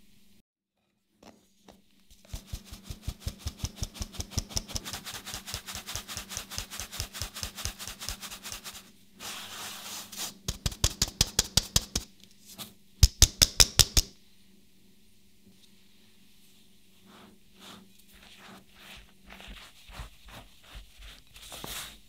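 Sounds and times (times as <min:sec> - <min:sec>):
flour sieve tapping: 0:01.2 - 0:08.7, 0:10.4 - 0:12.1.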